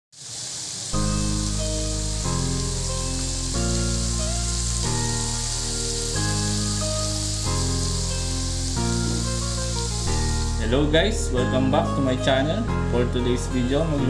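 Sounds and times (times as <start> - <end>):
squid deep-frying in oil: 0.1 - 10.7
background music chords: 1.0 - 14.0.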